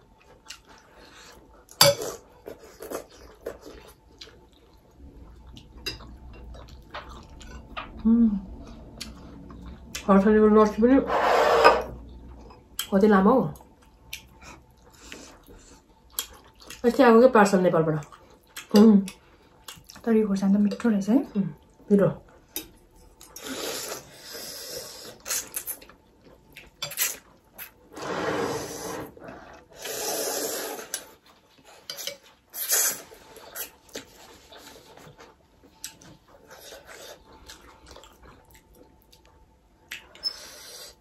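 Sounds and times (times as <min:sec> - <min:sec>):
person slurping noodle soup: 0:11.1 - 0:11.9, 0:23.4 - 0:25.5, 0:28.0 - 0:31.1.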